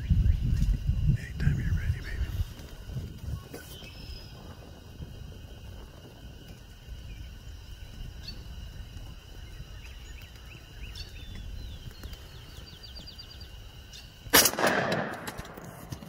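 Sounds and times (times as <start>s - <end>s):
songbirds chirping: 0.0s - 14.3s
steady low rumble: 0.0s - 16.0s.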